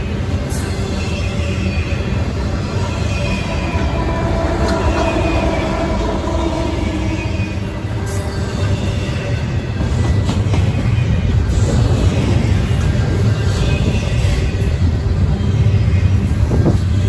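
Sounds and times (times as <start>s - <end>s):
diesel locomotive engine rumble: 0.0s - 17.0s
train cars wheel-on-rail noise: 0.0s - 17.0s.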